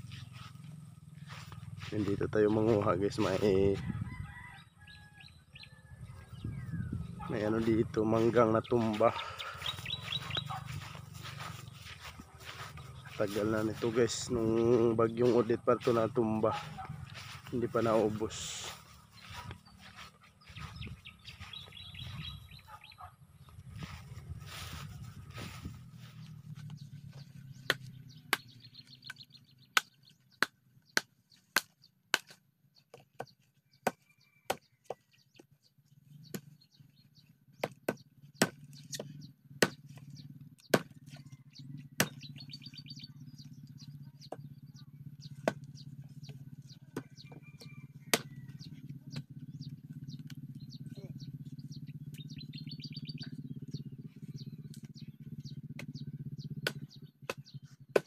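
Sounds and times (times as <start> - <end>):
knife chopping dry wood: 27.6 - 35.0, 37.5 - 41.2, 42.0 - 42.3, 45.3 - 45.8, 48.1 - 48.4, 56.6 - 58.0.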